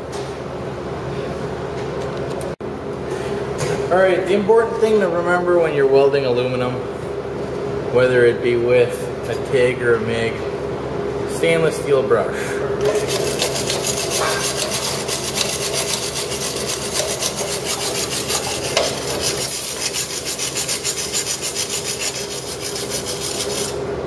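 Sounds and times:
wire brush scraping metal: 12.8s - 23.8s.

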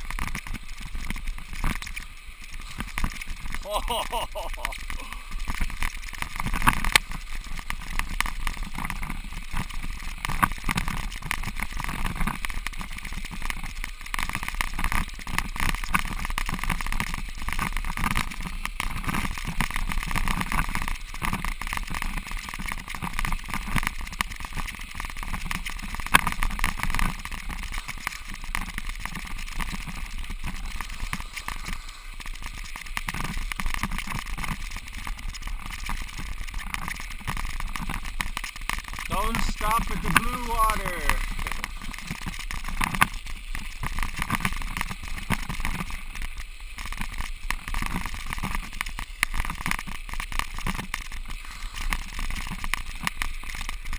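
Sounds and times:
bicycle tyres rolling over snow: 0.0s - 53.9s.

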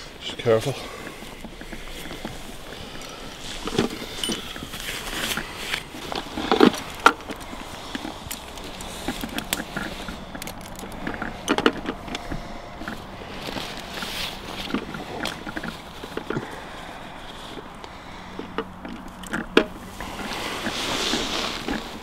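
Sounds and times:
fabric rustling: 0.0s - 19.1s, 19.7s - 22.0s
small metal clinks: 1.6s - 16.4s.

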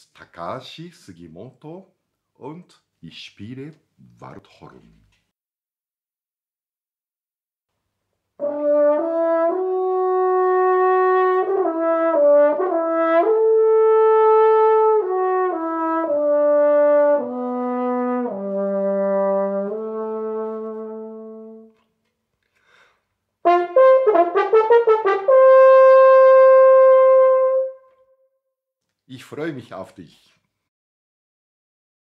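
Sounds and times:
french horn melody: 8.4s - 21.9s, 23.4s - 28.2s.

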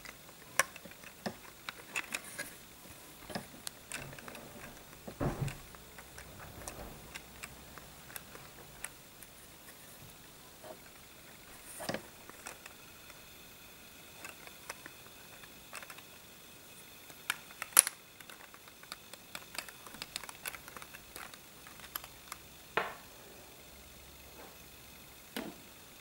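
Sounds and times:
plastic bricks clicking: 0.0s - 2.5s, 14.2s - 16.1s, 17.1s - 22.4s.

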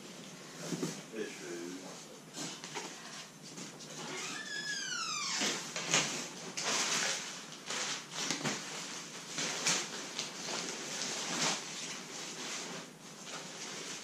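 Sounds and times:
tent fabric rustling and crinkling: 5.9s - 14.0s.

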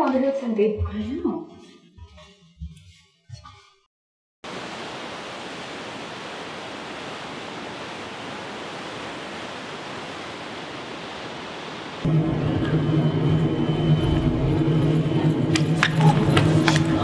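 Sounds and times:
ship wake water rushing: 4.4s - 12.1s.

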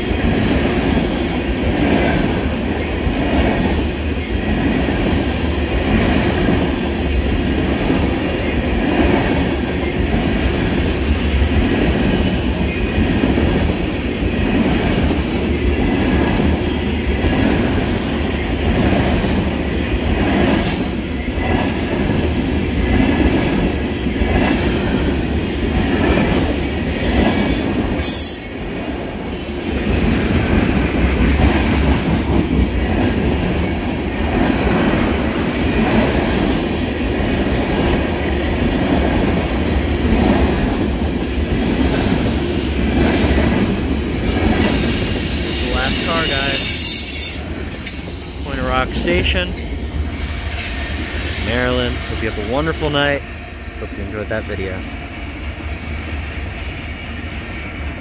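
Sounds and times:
train wheels rumbling on rail: 0.0s - 58.0s
high wheel squeals: 4.7s - 6.0s, 26.9s - 28.6s, 44.3s - 48.4s.

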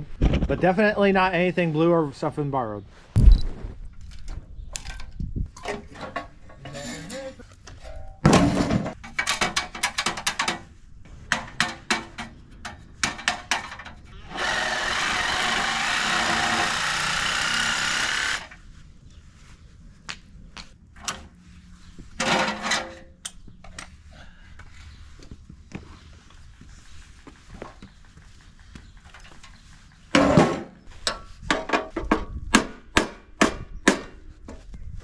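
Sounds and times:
metal clicks and clanks: 9.0s - 10.7s
cordless drill running: 14.2s - 18.5s.

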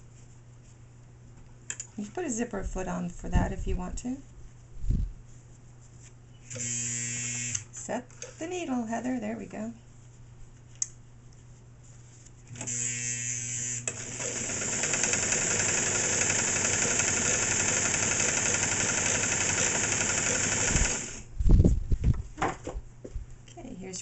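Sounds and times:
sewing machine running: 12.6s - 21.3s.

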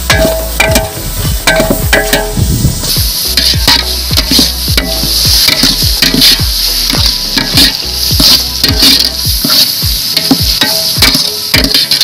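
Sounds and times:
metal ladle scraping metal pot: 0.0s - 12.0s
vegetables sizzling in oil: 0.0s - 12.0s.

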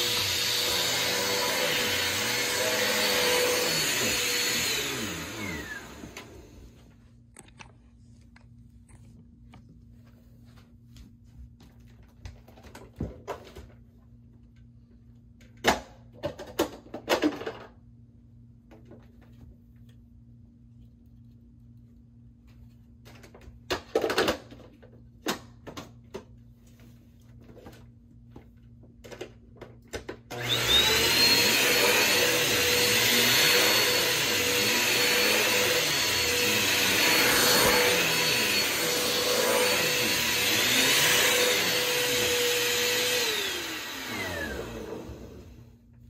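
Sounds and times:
vacuum cleaner motor whining: 0.0s - 6.9s, 30.3s - 45.7s.

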